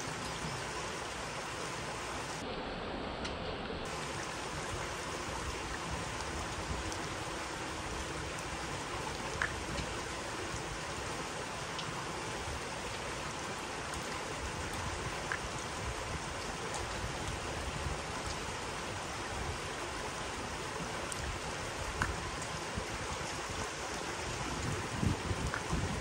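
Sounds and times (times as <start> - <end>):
light rain hiss: 0.0 - 26.0
raindrop ticks: 9.1 - 10.7, 11.7 - 12.0, 13.9 - 17.4, 21.9 - 22.6, 24.6 - 26.0
wind on microphone: 20.8 - 26.0.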